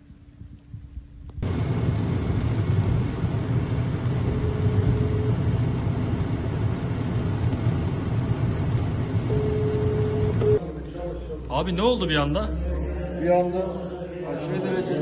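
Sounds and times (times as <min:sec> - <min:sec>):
thin steady hum: 0:00.0 - 0:14.8
car engine and road rumble: 0:01.3 - 0:12.9
rain and wet tyres hissing: 0:01.4 - 0:14.0.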